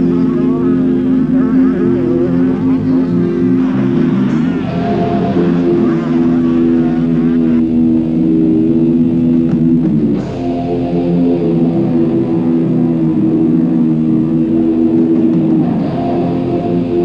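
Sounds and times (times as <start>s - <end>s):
rock music with electric guitar: 0.0s - 17.0s.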